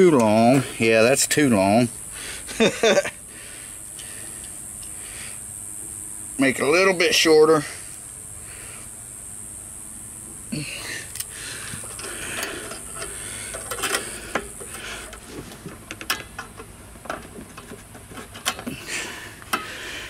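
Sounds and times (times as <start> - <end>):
light metal clicks and scraping: 11.1 - 18.8.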